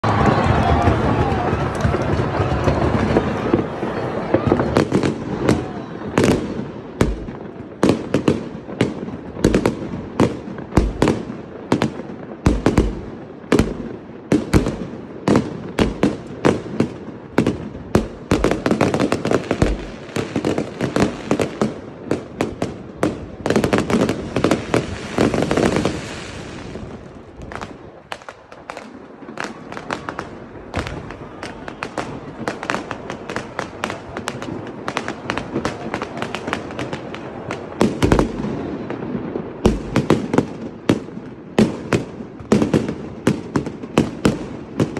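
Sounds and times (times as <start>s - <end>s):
fireworks bangs: 0.0s - 44.9s
fireworks crackle: 0.0s - 44.9s.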